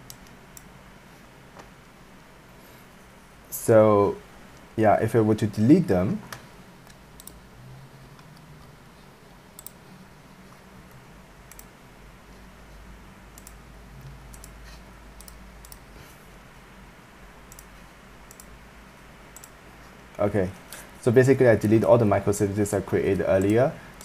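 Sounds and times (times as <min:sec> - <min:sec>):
computer mouse clicks: 0:00.0 - 0:00.7, 0:06.2 - 0:07.4, 0:09.6 - 0:09.8, 0:10.5 - 0:11.8, 0:13.3 - 0:15.9, 0:17.5 - 0:18.6, 0:19.3 - 0:20.8, 0:23.4 - 0:24.0
steady low hum: 0:00.0 - 0:24.0.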